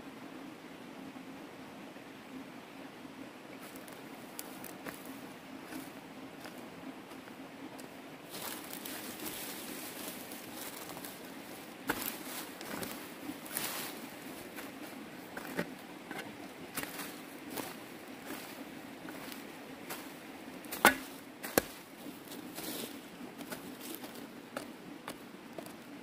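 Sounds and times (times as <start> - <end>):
tool striking ground: 11.9 - 13.7, 15.4 - 17.7, 20.7 - 21.8
digging tool scraping soil: 20.8 - 21.7.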